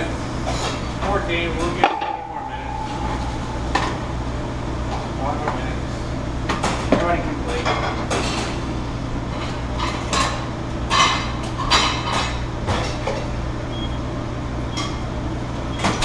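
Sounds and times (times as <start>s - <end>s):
ventilation hood hum: 0.0s - 16.0s
pots and pans clinking: 1.7s - 4.2s.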